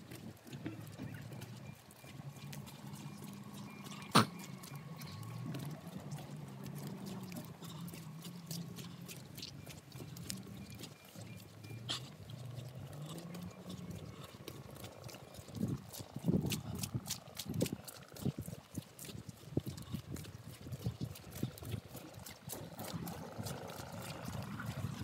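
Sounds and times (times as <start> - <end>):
footsteps on stony dirt track: 0.0 - 25.0.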